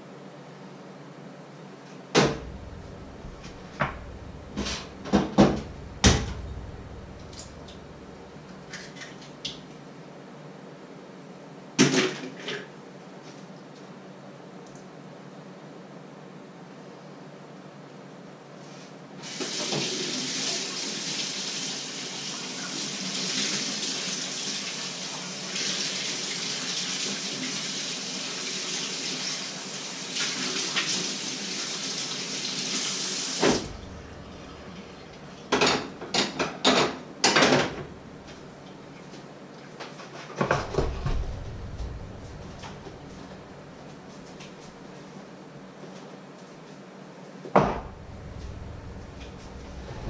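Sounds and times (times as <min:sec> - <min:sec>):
sharp knocks: 0:02.2 - 0:07.8
dull thumps: 0:02.2 - 0:08.0
tap running into sink: 0:03.3 - 0:08.0.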